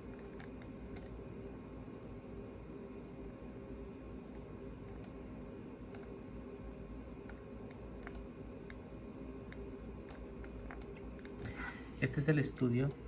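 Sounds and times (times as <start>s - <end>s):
steady low hum: 0.0s - 13.0s
faint computer control clicks: 7.2s - 8.8s, 12.2s - 13.0s.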